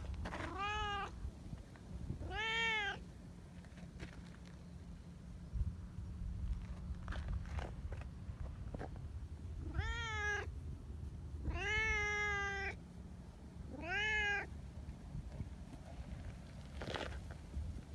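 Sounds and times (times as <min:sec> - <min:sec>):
cat meowing: 0:00.4 - 0:01.2, 0:02.2 - 0:03.0, 0:09.6 - 0:10.5, 0:11.4 - 0:12.8, 0:13.7 - 0:14.5.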